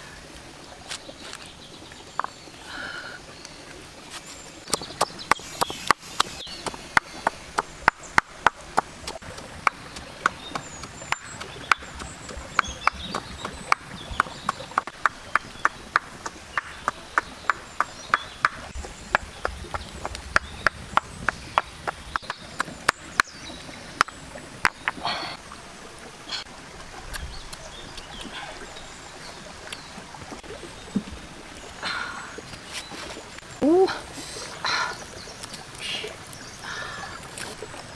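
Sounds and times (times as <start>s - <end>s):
birds calling: 4.2s - 25.4s, 31.6s - 37.6s.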